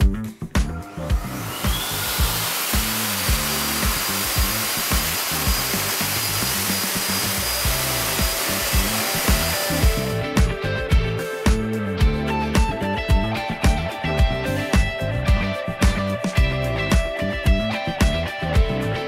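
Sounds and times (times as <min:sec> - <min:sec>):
pet dryer blowing hiss: 0:00.8 - 0:10.2.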